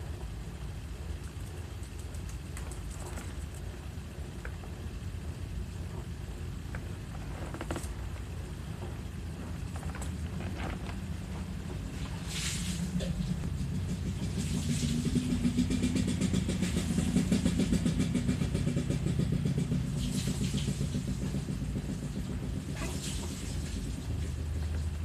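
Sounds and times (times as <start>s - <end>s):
engine pulsing rumble: 0.0s - 25.0s
short hissy noises: 12.2s - 12.9s.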